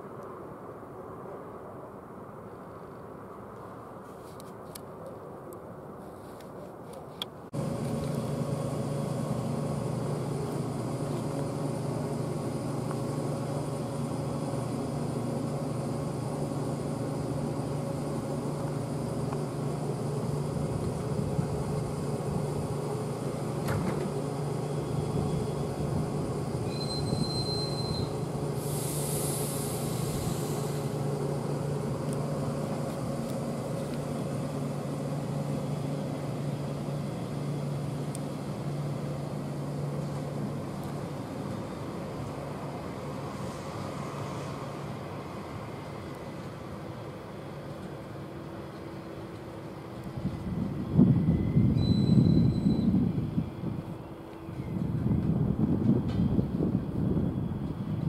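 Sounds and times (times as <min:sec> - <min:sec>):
train machinery humming: 0:02.4 - 0:58.0
air hissing: 0:23.6 - 0:34.0
short high beep: 0:26.7 - 0:28.2, 0:51.7 - 0:52.9.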